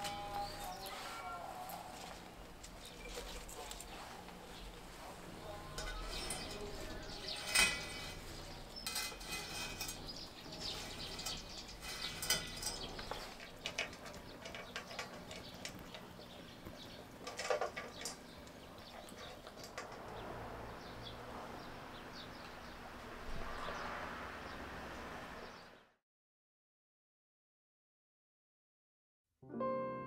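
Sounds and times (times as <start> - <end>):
flower stems rustling: 0.0 - 13.6.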